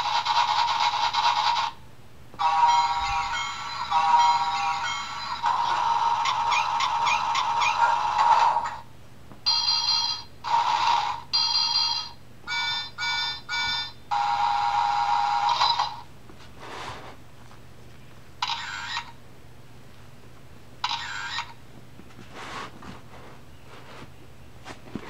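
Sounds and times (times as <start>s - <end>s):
electronic toy tune: 2.4s - 8.5s, 11.4s - 16.0s, 18.4s - 19.1s.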